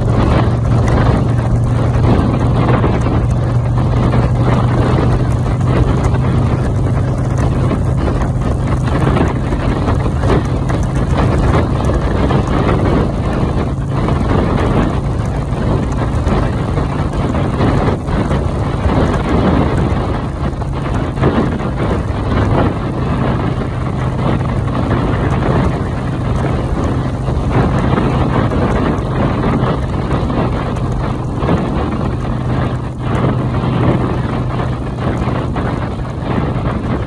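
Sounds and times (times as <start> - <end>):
low engine drone: 0.0 - 37.0
wind buffeting microphone: 0.0 - 37.0.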